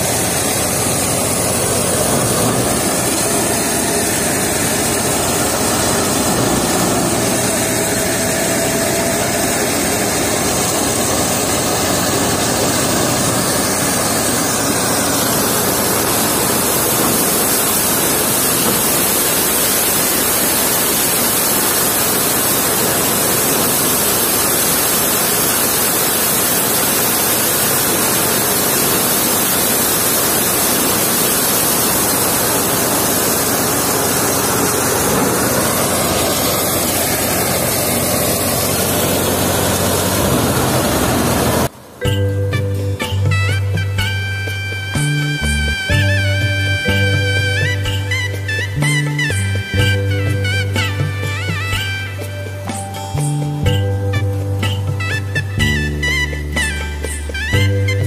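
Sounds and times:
threshing machine rushing: 0.0s - 41.8s
tractor engine drone: 0.0s - 58.0s.

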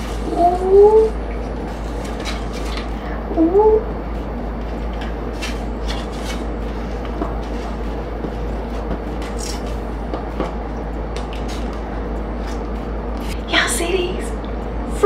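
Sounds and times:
room hum: 0.0s - 15.0s
rising voice-like call: 0.2s - 1.2s, 3.3s - 3.9s.

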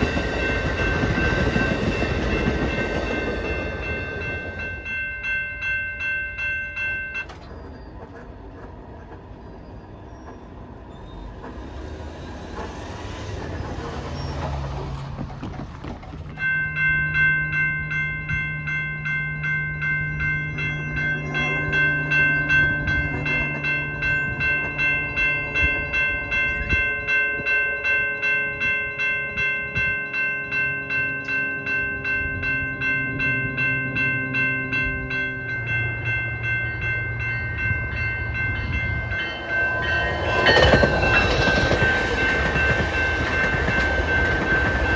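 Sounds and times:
railroad crossing bells ringing: 0.0s - 44.9s
train rumbling: 0.0s - 44.9s
train horn: 21.2s - 26.0s, 26.6s - 29.4s, 30.7s - 35.8s.

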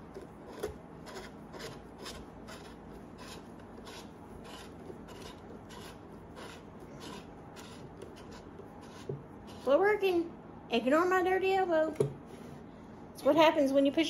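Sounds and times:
hands rubbing metal handle: 0.0s - 9.7s.

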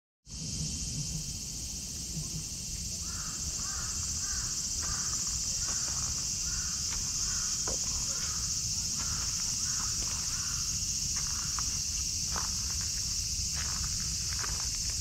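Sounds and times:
high-pitched insect chorus: 0.3s - 15.0s
faint footsteps on sand: 3.2s - 15.0s.

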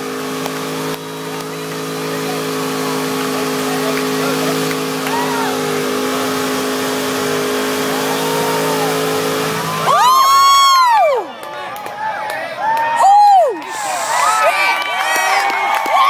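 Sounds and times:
car engine at high revs: 0.0s - 11.3s
spectator whooping: 3.8s - 6.0s, 7.9s - 11.4s, 12.6s - 16.0s.

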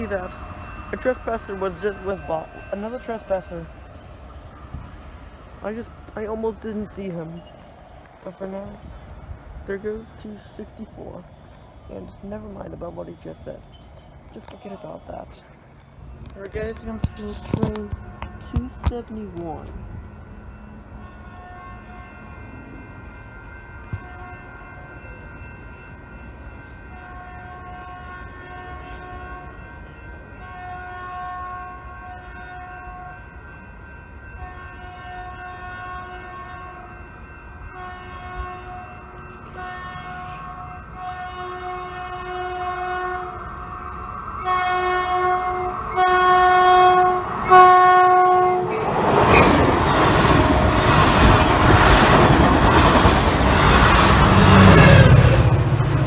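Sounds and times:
train passing with engine and wheel noise: 0.0s - 56.0s
locomotive horn blasts: 21.1s - 22.3s, 26.9s - 29.6s, 30.3s - 33.3s, 34.4s - 36.9s, 37.7s - 49.5s.

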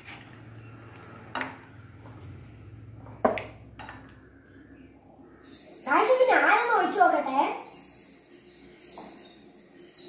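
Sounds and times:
low steady hum: 0.0s - 5.7s.

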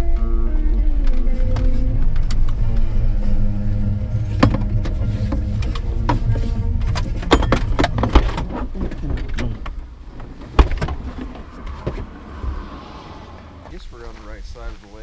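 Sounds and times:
low engine rumble: 0.0s - 15.0s
car doors opening: 3.9s - 14.3s
car door thump: 10.2s - 12.8s.

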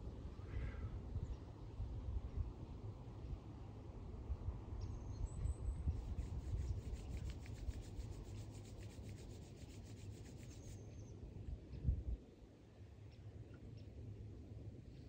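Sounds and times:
wind rumble on microphone: 0.0s - 12.4s
palms rubbing together: 6.0s - 10.8s.

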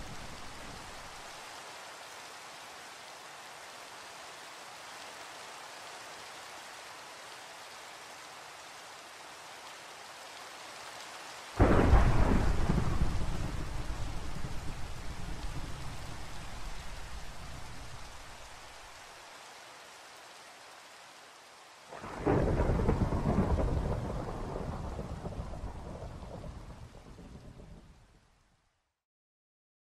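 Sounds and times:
steady rain: 0.0s - 29.0s
thunder clap and rumble: 11.6s - 18.2s, 22.0s - 27.8s.

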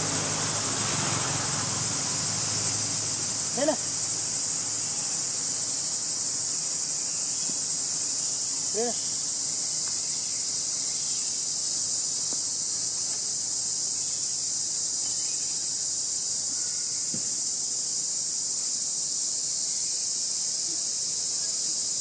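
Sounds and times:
insect chorus drone: 0.0s - 22.0s.

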